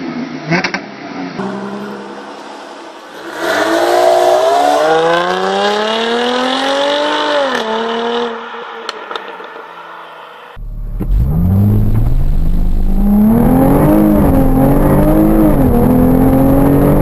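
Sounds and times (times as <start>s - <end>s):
car accelerating hard: 1.4s - 8.4s, 10.6s - 17.0s
car engine idling: 10.6s - 16.2s.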